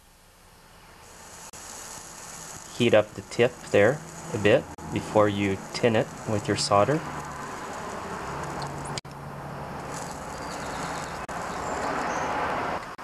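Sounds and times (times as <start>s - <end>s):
solder sizzling hiss: 1.0s - 9.0s, 9.8s - 12.0s
soldering gun humming: 1.0s - 9.1s.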